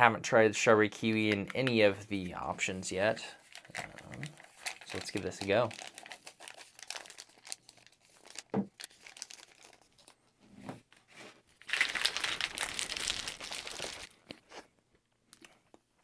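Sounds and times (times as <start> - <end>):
foil packet crinkling: 3.4 - 10.2, 11.5 - 14.4.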